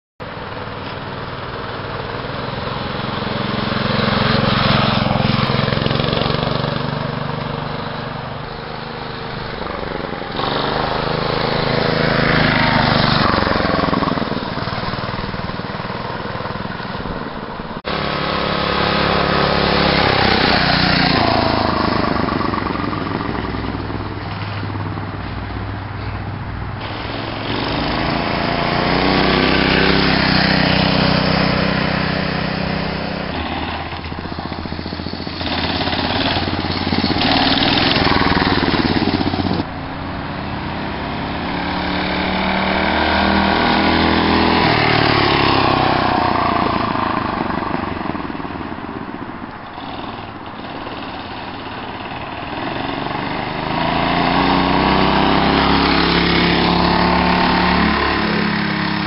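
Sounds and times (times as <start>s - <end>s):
mini bike engine passing: 0.2s - 59.0s.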